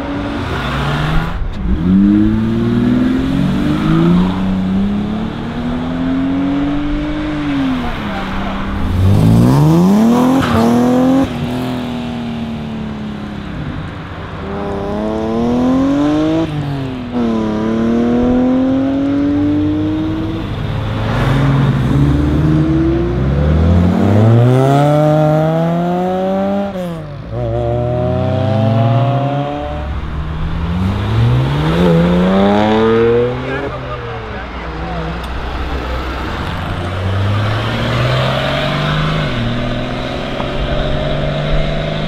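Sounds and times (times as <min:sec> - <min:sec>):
cars accelerating hard: 0:00.0 - 0:42.0.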